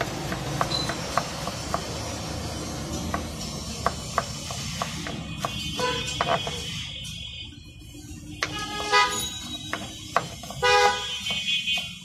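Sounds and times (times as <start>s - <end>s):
knife chopping on wooden board: 0.0s - 2.2s, 3.0s - 6.6s.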